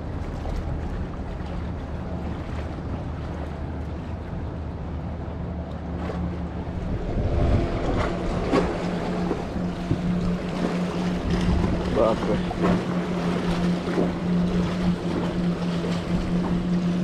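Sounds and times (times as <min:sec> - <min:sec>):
steady low hum: 0:00.0 - 0:17.0
water splashing against rocks: 0:05.9 - 0:17.0
wind on microphone: 0:06.0 - 0:17.0.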